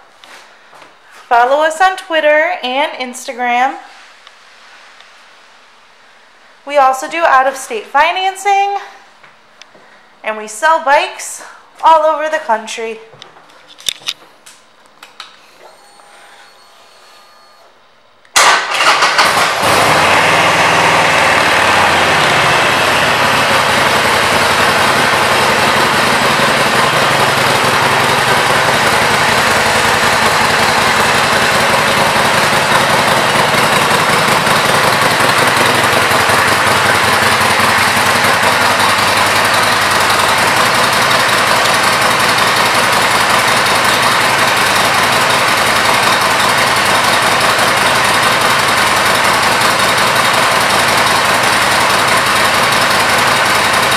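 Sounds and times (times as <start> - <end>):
motorcycle engine starting and idling: 18.3 - 53.9.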